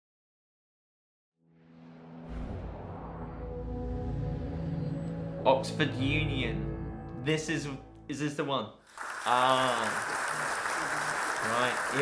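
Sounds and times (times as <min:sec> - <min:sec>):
deep droning music: 0:01.4 - 0:08.2.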